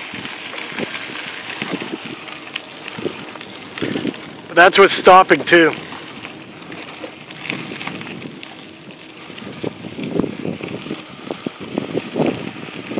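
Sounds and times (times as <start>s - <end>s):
bicycle rattles and knocks: 0.0s - 12.9s
bicycle tyres on dirt: 0.0s - 12.9s
wind buffeting microphone: 0.0s - 12.9s.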